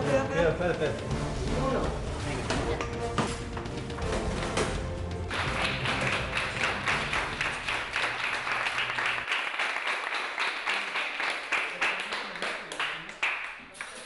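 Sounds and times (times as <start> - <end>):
people clapping: 5.2 - 14.0.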